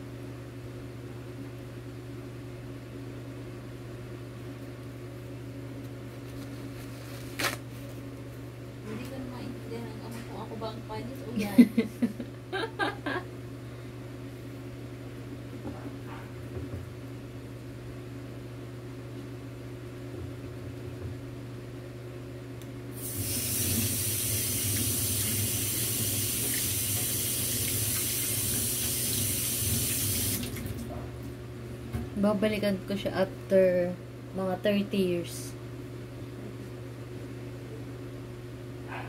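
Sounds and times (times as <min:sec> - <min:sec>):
low steady hum: 0:00.0 - 0:23.0, 0:23.6 - 0:39.0
tap water running into steel sink: 0:23.1 - 0:30.8.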